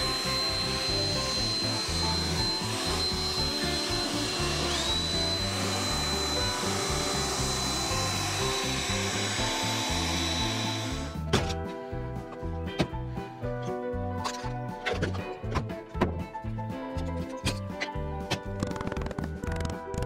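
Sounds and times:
leaf blower running: 0:00.0 - 0:11.3.

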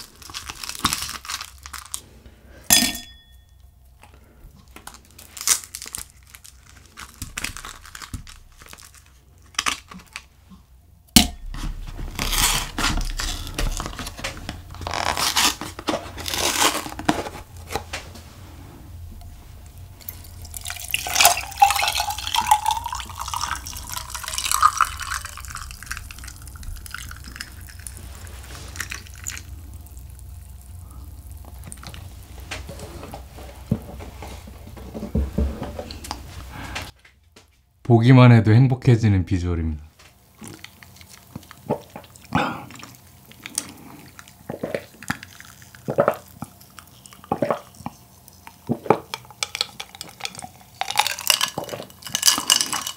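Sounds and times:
drink pouring over ice: 0:20.0 - 0:32.4, 0:49.0 - 0:52.9
ice cubes clinking into glass: 0:20.5 - 0:27.8, 0:49.5 - 0:52.9.

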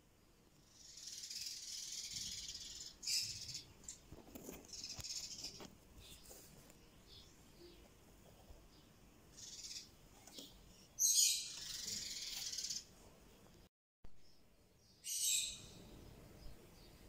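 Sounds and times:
lovebird chattering: 0:00.7 - 0:04.0, 0:09.3 - 0:10.0, 0:11.0 - 0:12.9.

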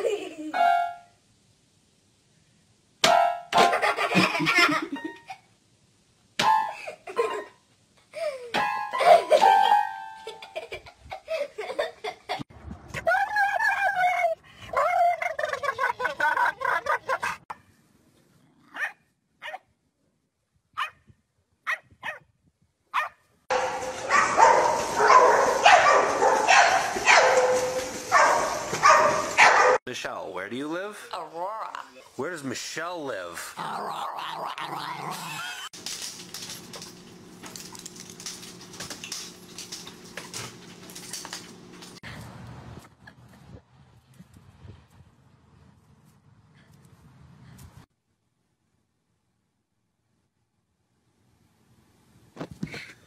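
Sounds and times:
dog barking: 0:18.7 - 0:19.6, 0:20.8 - 0:21.0, 0:21.7 - 0:22.2, 0:22.9 - 0:29.8.

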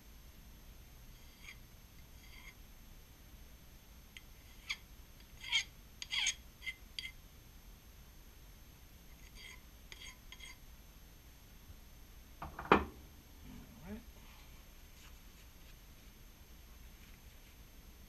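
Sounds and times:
hand file rasping on metal: 0:09.2 - 0:10.6.

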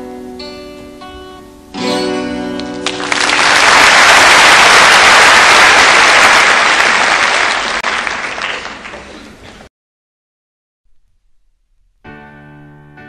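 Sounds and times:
acoustic guitar picking: 0:00.4 - 0:02.8
audience applause: 0:02.8 - 0:09.6.

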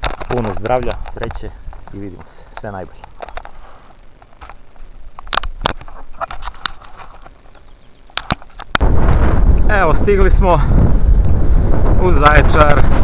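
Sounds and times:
camera handling noise: 0:00.0 - 0:08.8.

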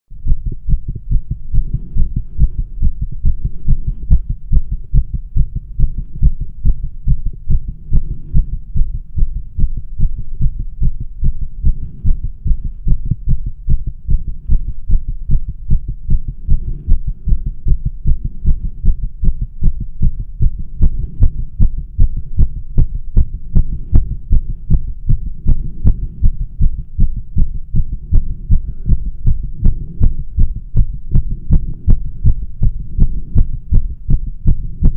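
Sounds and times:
rapid heartbeat: 0:00.1 - 0:34.9.

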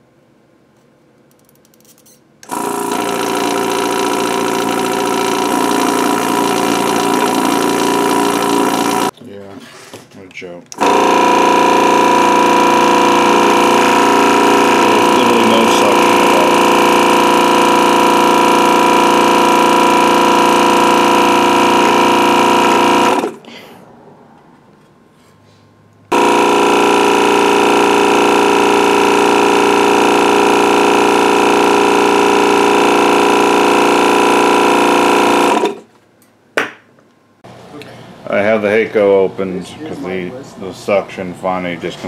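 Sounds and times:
vacuum pump buzzing: 0:02.4 - 0:09.2, 0:10.7 - 0:23.6, 0:26.1 - 0:35.9.

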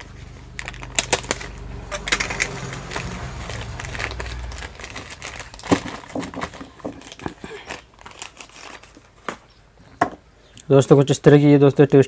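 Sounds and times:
plastic packet crinkling: 0:00.0 - 0:01.6, 0:02.3 - 0:09.5
low hum: 0:00.0 - 0:07.1.

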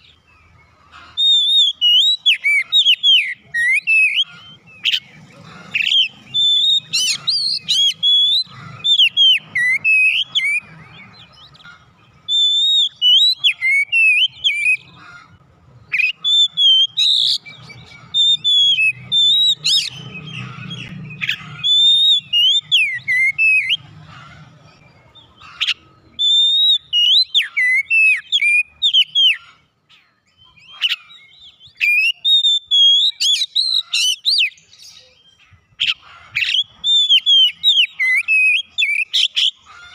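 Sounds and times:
high bird chirps: 0:00.0 - 0:39.9
bird singing whistled phrases: 0:01.2 - 0:05.1, 0:05.8 - 0:11.6, 0:12.2 - 0:15.0, 0:15.9 - 0:23.8, 0:25.7 - 0:29.4, 0:30.3 - 0:35.4, 0:36.4 - 0:39.6.

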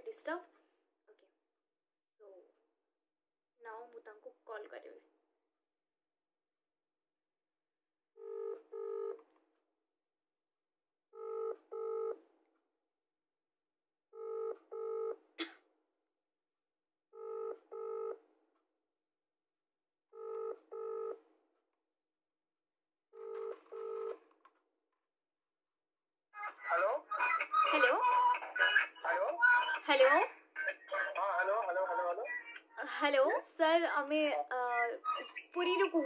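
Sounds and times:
phone ringback tone: 0:08.2 - 0:09.2, 0:17.2 - 0:18.2, 0:23.2 - 0:24.2.

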